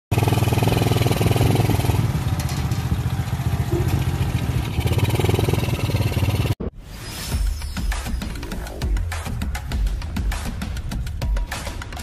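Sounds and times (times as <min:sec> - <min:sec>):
motorcycle engine running: 0:00.1 - 0:06.6.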